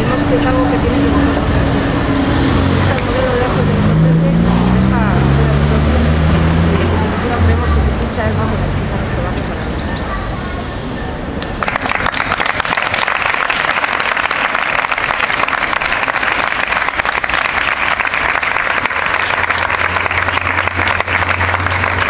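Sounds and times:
crowd applauding: 0:11.4 - 0:22.0.

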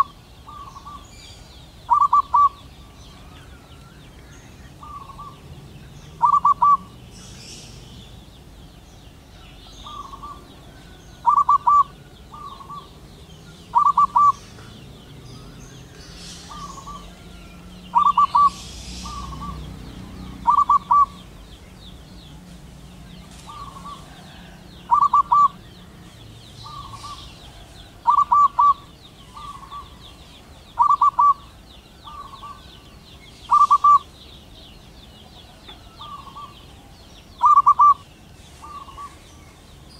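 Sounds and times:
dove cooing: 0:00.0 - 0:01.1, 0:01.8 - 0:03.7, 0:04.7 - 0:07.9, 0:09.4 - 0:21.5, 0:23.3 - 0:26.0, 0:26.6 - 0:30.0, 0:30.7 - 0:32.6, 0:33.5 - 0:34.1, 0:35.3 - 0:38.0, 0:38.6 - 0:39.2.

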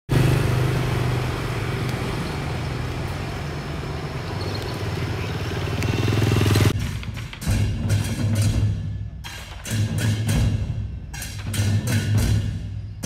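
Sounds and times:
engine running: 0:00.1 - 0:07.4.

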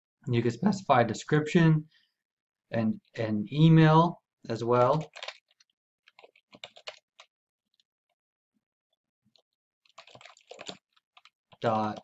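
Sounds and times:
computer keyboard typing: 0:04.8 - 0:07.8, 0:09.3 - 0:12.0.

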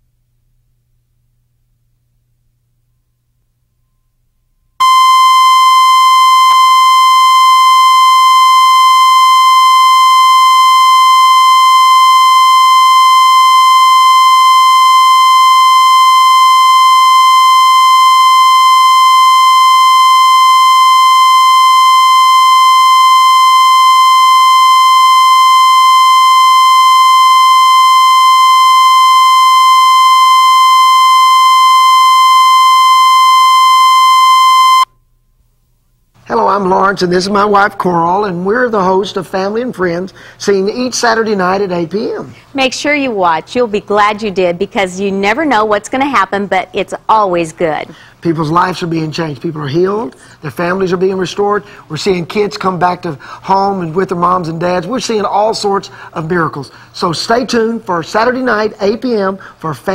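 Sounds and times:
steady test tone: 0:04.8 - 0:35.0.

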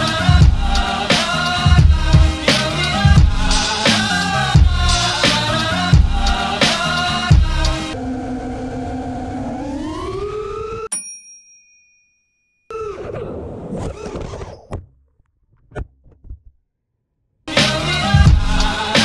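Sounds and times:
drone motors whining: 0:07.9 - 0:10.9.

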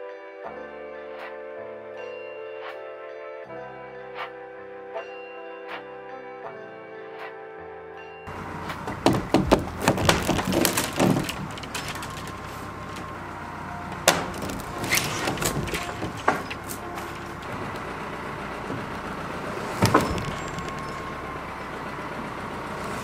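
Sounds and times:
wooden poles knocking together: 0:08.3 - 0:21.4.

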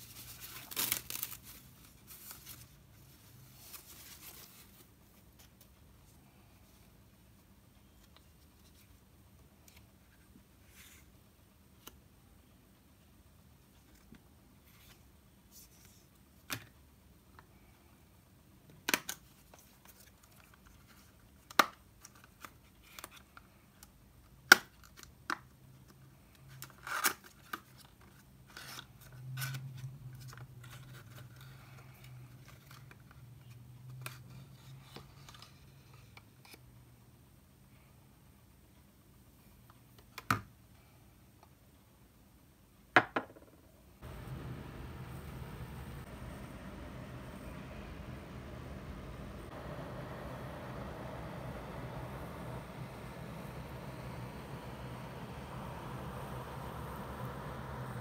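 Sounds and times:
low rubbing sound: 0:44.0 - 0:58.0.

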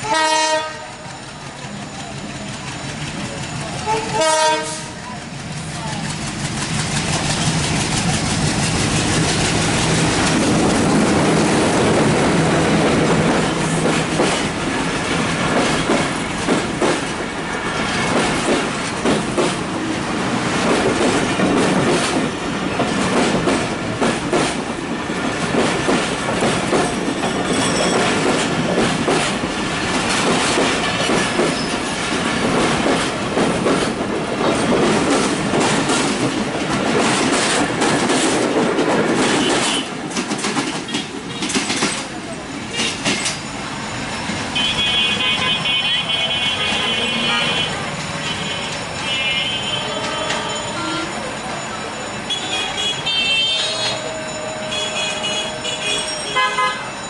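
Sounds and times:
train horn blast: 0:00.0 - 0:01.1, 0:03.8 - 0:05.1, 0:44.6 - 0:51.2, 0:52.3 - 0:57.0
clickety-clack of wheels on rails: 0:00.0 - 0:57.0
diesel locomotive engine running: 0:00.0 - 0:57.0.

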